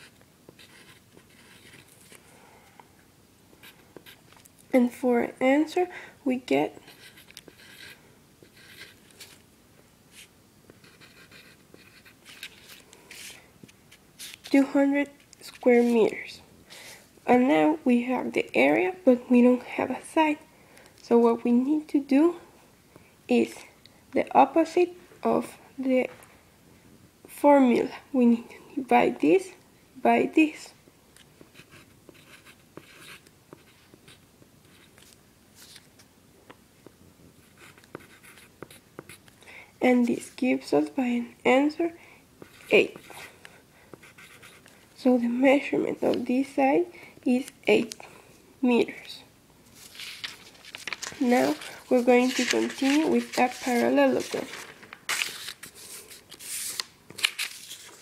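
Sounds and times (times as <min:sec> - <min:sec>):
pen scratching on paper: 0:00.0 - 0:02.1, 0:06.8 - 0:09.4, 0:10.1 - 0:13.4, 0:31.4 - 0:35.0, 0:37.4 - 0:39.2, 0:44.0 - 0:44.7, 0:51.2 - 0:54.5.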